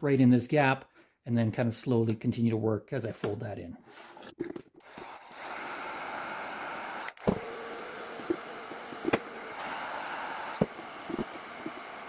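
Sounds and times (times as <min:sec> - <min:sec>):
heat gun blowing hiss: 0:04.9 - 0:12.0.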